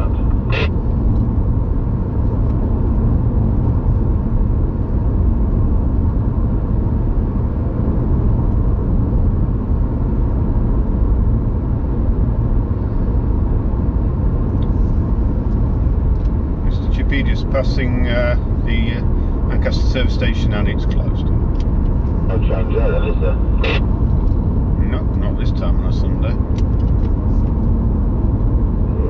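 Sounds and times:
car road noise rumble: 0.0s - 29.0s.

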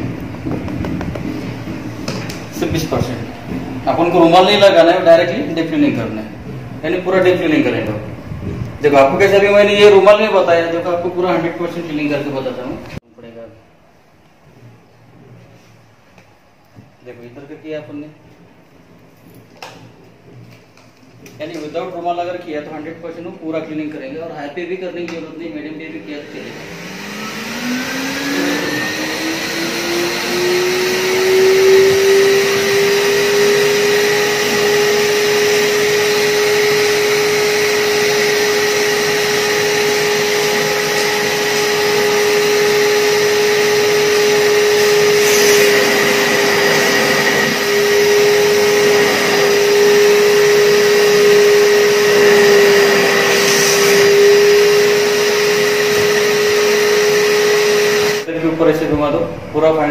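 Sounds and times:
vacuum suction hiss: 25.8s - 59.9s
vacuum cleaner motor whining: 26.0s - 58.3s.

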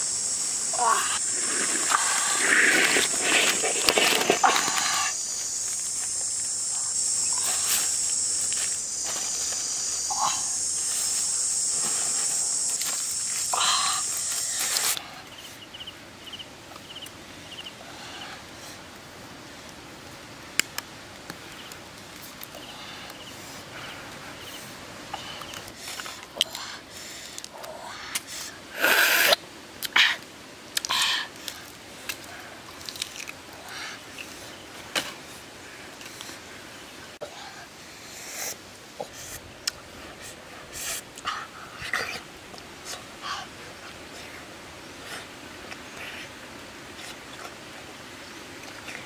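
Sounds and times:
shrill insect drone: 0.0s - 15.0s.

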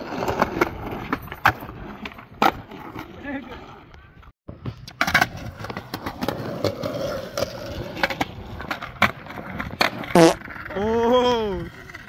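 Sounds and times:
skateboard wheels rolling on concrete: 0.0s - 12.0s.

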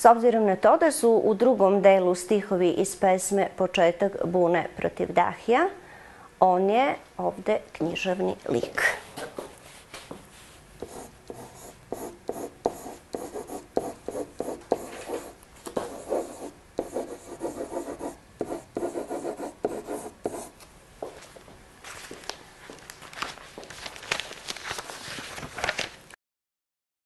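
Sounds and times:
pen writing on a whiteboard: 10.8s - 20.6s.

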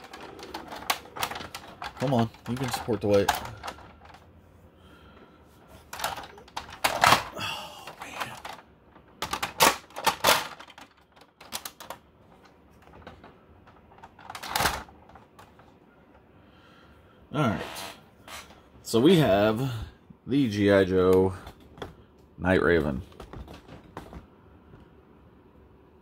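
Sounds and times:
plastic toy clicking and clattering: 0.0s - 4.2s, 5.8s - 15.7s.

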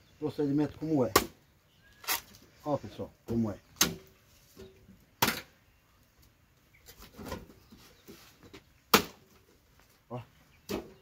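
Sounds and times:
machete chopping roots: 1.0s - 1.4s, 3.8s - 4.1s, 5.2s - 5.5s, 8.9s - 9.3s.

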